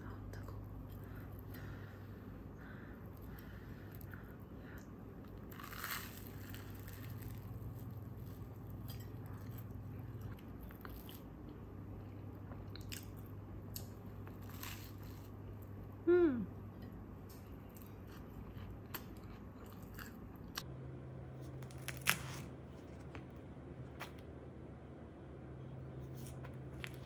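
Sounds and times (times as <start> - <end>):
low steady hum: 0.0 - 27.0
crust crackling: 5.2 - 11.2, 21.4 - 24.2
bites and crunches: 5.3 - 9.5, 12.7 - 15.4.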